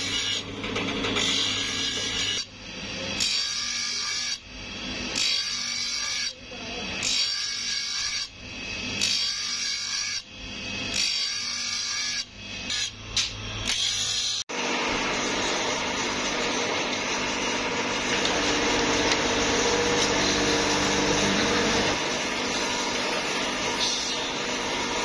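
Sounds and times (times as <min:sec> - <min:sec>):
grinding wheel grinding: 0:14.6 - 0:25.0.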